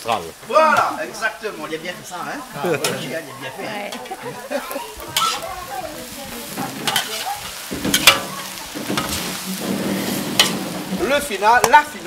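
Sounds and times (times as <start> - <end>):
metal utensils clanking on wok: 0.0 - 3.3, 3.9 - 12.0
noodles sizzling in wok: 0.0 - 12.0.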